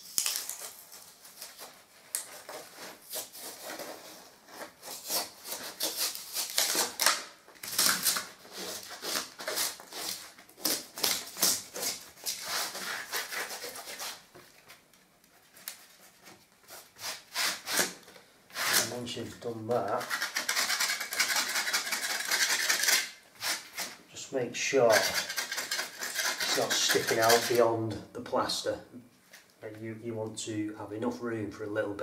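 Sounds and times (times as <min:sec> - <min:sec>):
knife scraping foam: 0:00.0 - 0:07.1, 0:07.7 - 0:14.3, 0:16.7 - 0:19.0, 0:19.8 - 0:24.0, 0:24.9 - 0:27.6.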